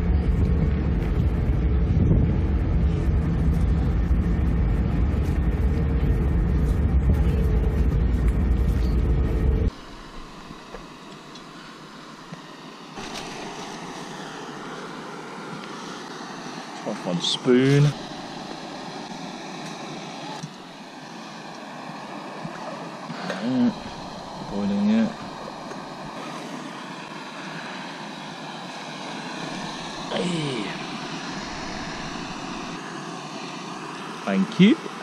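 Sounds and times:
wind on microphone: 0:00.0 - 0:10.4
ferry engine running: 0:00.0 - 0:11.0, 0:17.7 - 0:34.0
even hiss: 0:09.7 - 0:35.0.

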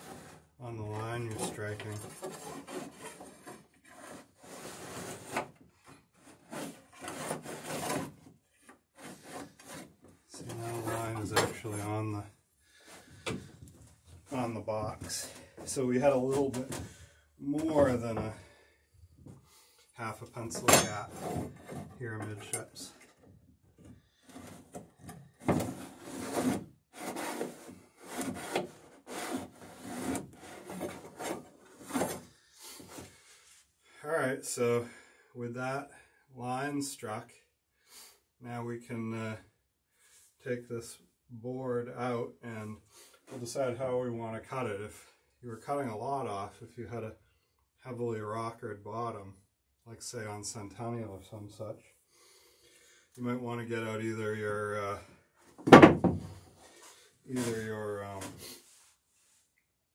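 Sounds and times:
pencil and straightedge scraping wood: 0:00.0 - 0:11.2, 0:20.9 - 0:22.0, 0:22.9 - 0:33.2
pencil scratching on wood: 0:01.3 - 0:05.4.

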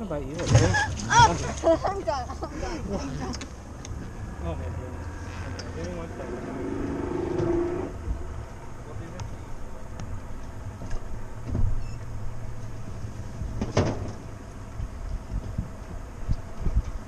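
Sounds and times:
boat low hum: 0:00.0 - 0:17.0.

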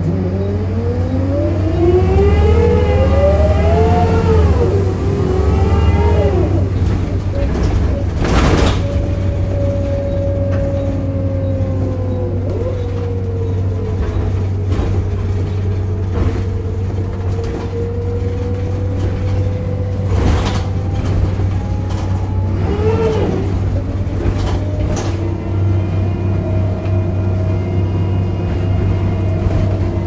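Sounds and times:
bus drive rumble with whine: 0:00.0 - 0:30.0
bus body knocking and rattling: 0:04.7 - 0:30.0.

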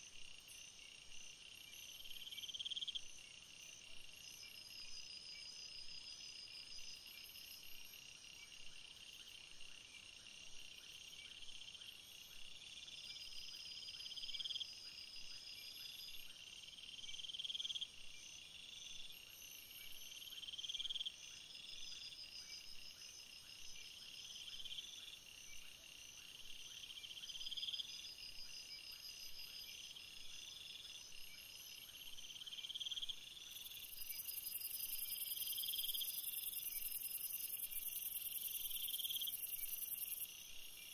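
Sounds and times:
insect buzz: 0:17.2 - 0:40.9
high pulsing insect trill: 0:26.6 - 0:40.9.

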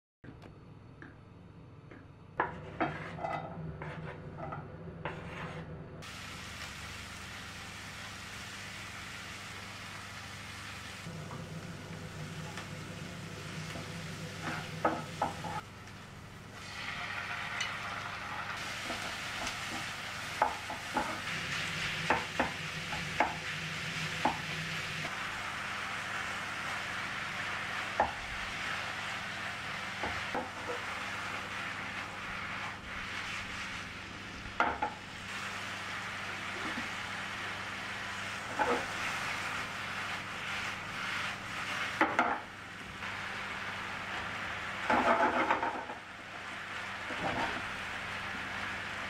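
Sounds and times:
onions and beef sizzling: 0:06.0 - 0:49.0
wooden spatula knocking pan: 0:34.6 - 0:35.0, 0:42.0 - 0:42.4.

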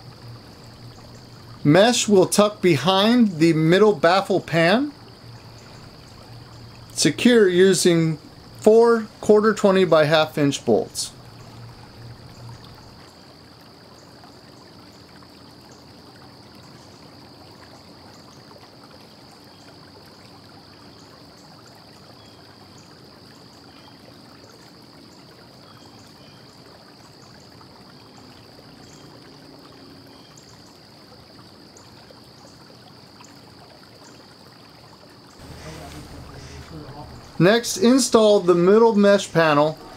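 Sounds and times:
steady hiss: 0:00.0 - 0:13.1, 0:35.4 - 0:39.9.

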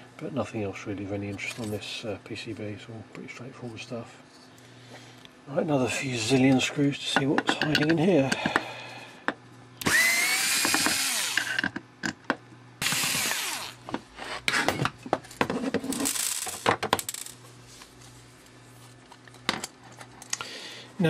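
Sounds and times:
electric screwdriver running: 0:09.8 - 0:11.6, 0:12.8 - 0:13.8.

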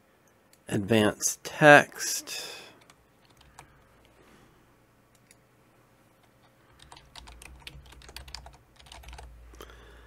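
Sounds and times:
computer keyboard typing: 0:02.8 - 0:04.1, 0:06.2 - 0:09.3.

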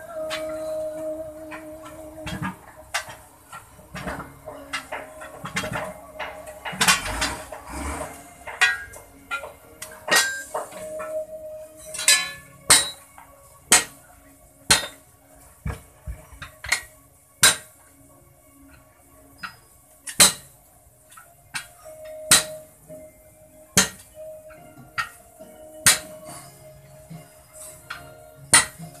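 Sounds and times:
metal scraping and knocking: 0:00.0 - 0:14.0
metallic clanks on wheel rims: 0:00.0 - 0:17.9, 0:18.7 - 0:22.9, 0:23.8 - 0:29.0.

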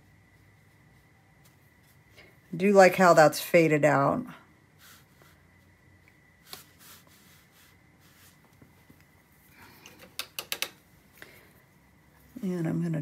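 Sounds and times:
brush swishing on paper: 0:00.0 - 0:03.4, 0:04.7 - 0:05.8, 0:06.4 - 0:09.0
sharp clicks: 0:09.8 - 0:10.8.

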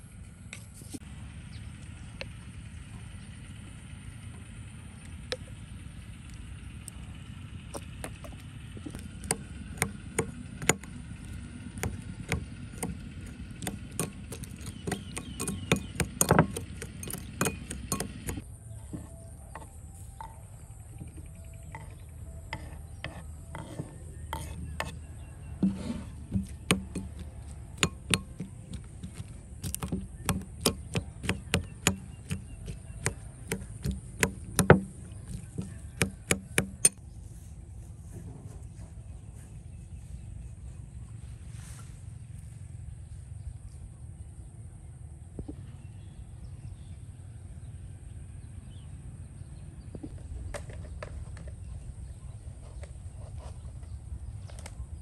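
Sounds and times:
knife chopping on wooden board: 0:07.8 - 0:10.9, 0:11.8 - 0:18.4, 0:22.5 - 0:37.0.

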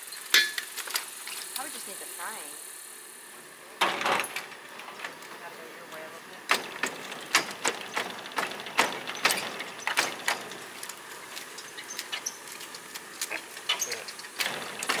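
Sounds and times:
greenhouse door clicks and snaps: 0:06.5 - 0:10.6.

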